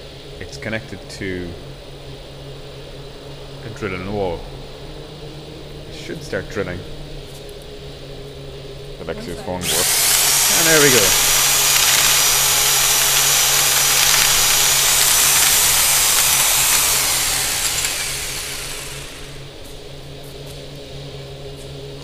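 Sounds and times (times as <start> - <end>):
electric drill boring into wall: 9.6 - 19.6.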